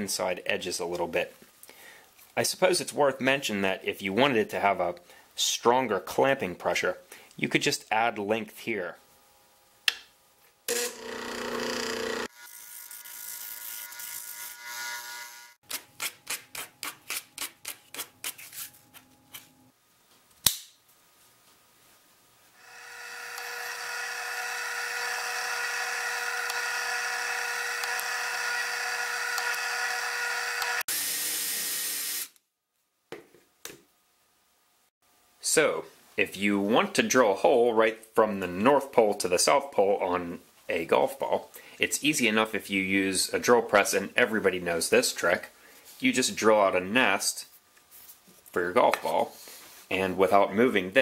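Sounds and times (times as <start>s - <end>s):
sharp click: 20.4s - 20.8s
disc sander sanding plastic: 22.6s - 30.8s.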